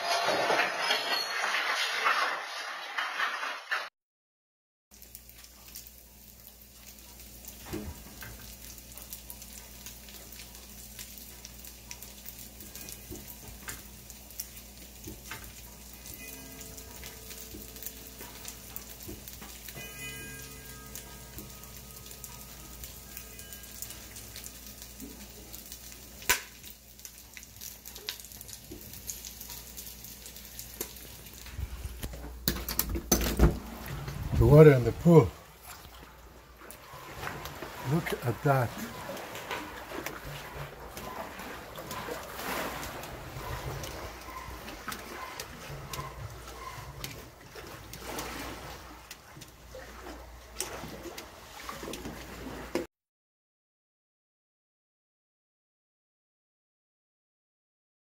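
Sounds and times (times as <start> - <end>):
house fixtures creaking and rattling: 0.0 - 3.9, 28.0 - 48.6.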